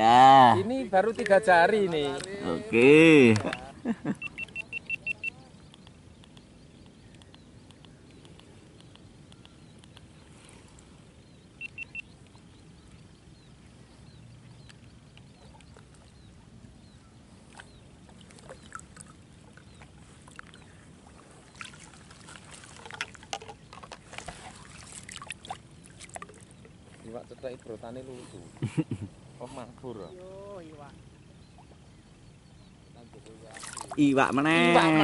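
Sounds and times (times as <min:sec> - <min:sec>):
water lapping and dribbling: 0:00.0 - 0:28.6, 0:33.1 - 0:35.0
small clicks and knocks: 0:22.8 - 0:24.4.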